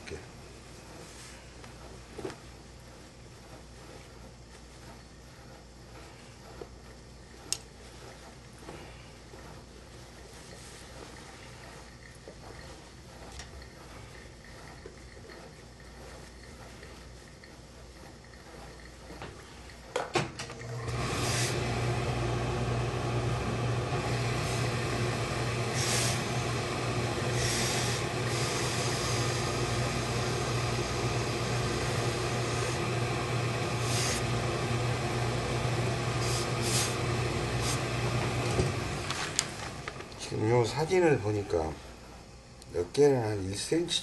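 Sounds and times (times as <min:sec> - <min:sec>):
machine hum with hiss: 0:00.0 - 0:44.0
steam iron clicks: 0:07.4 - 0:07.8
steam puffs hissing: 0:20.6 - 0:42.1.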